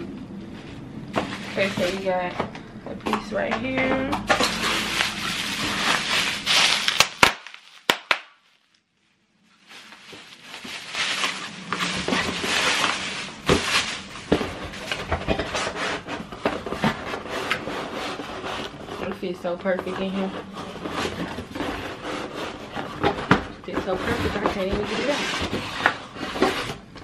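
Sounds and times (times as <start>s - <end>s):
bubble wrap crinkling: 0.5s - 2.1s, 4.3s - 19.2s.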